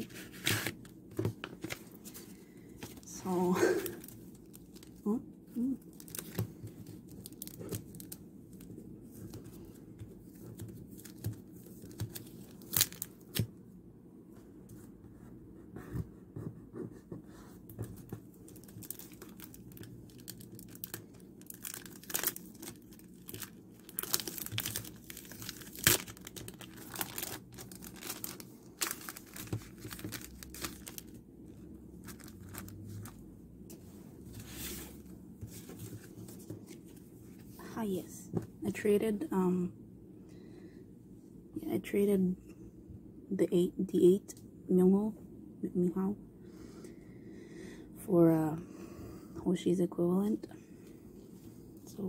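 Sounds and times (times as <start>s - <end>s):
plastic sleeves crinkling: 0.0s - 13.5s, 17.9s - 31.2s, 32.0s - 33.2s.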